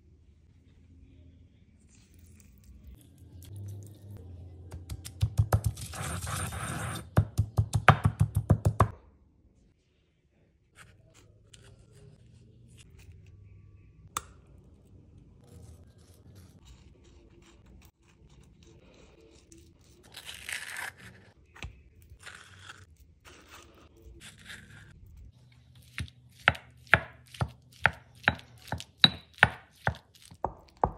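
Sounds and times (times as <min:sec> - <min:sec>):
stone pestle pounding in mortar: 0:07.1 - 0:08.9, 0:26.0 - 0:30.9
spoon scraping avocado: 0:15.4 - 0:30.9.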